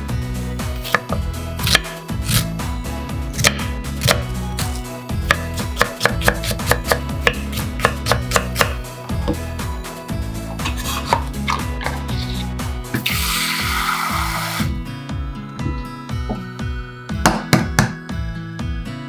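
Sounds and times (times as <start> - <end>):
knife cutting onion on wooden board: 0.7 - 2.6, 3.3 - 9.5, 10.6 - 13.2.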